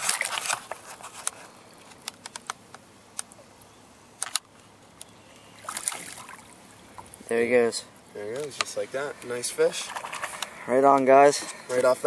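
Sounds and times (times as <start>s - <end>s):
water splashing and dripping: 5.6s - 7.2s, 9.7s - 10.5s.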